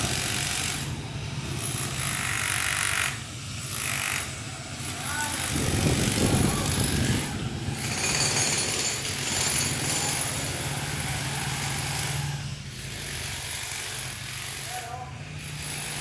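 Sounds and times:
steady engine hum: 0.0 - 8.2
demolition hammers breaking concrete: 4.8 - 12.2.

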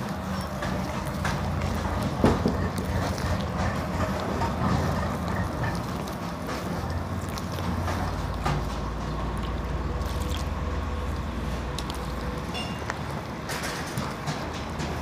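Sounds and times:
hand squelching through batter: 0.0 - 13.3.

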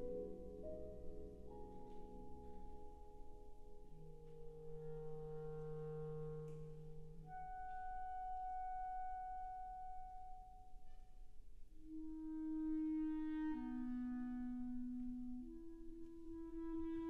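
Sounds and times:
clarinet and wind band held notes: 11.8 - 17.0.

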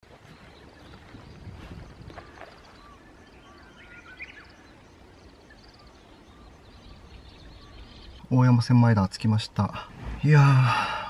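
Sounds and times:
low steady background: 0.0 - 11.0
bird chirps and calls: 0.2 - 9.7.

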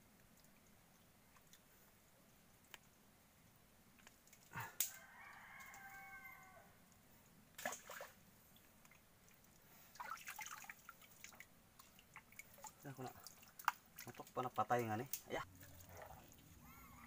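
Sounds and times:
faint distant animal call: 4.5 - 6.9, 15.6 - 17.0.

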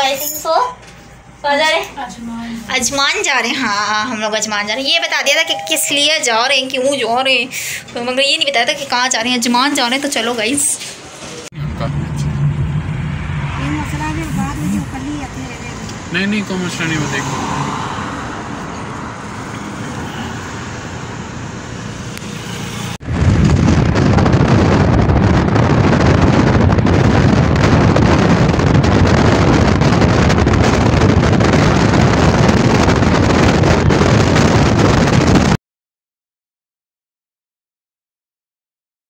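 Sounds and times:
car road noise: 10.8 - 35.6
low rumble: 11.4 - 20.2, 23.0 - 35.6
wind buffeting on microphone: 11.5 - 16.1, 23.0 - 35.6.

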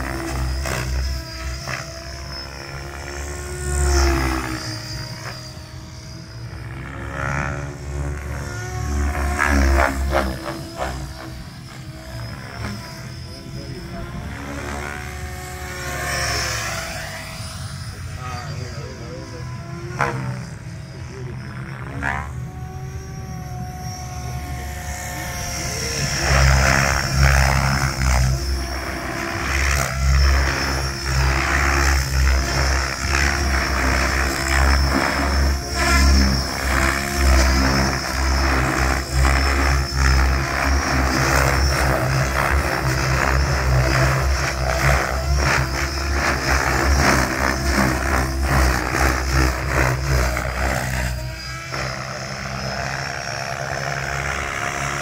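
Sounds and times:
model helicopter rotor and motor: 0.0 - 55.0.

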